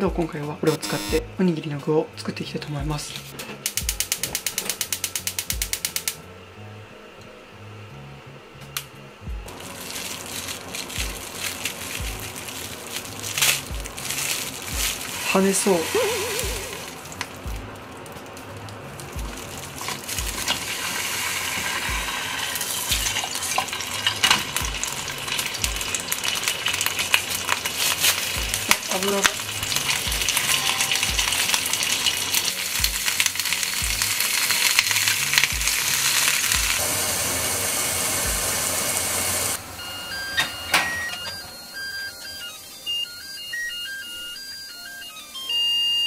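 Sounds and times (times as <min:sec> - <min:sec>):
rice cooker beeping tune: 0:00.7 - 0:01.3, 0:28.3 - 0:33.0, 0:36.8 - 0:46.0
fish sizzling in hot oil: 0:09.5 - 0:39.6.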